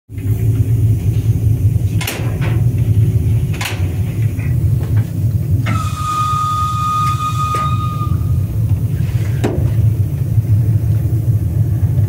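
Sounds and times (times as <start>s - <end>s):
low machinery rumble: 0.1s - 12.0s.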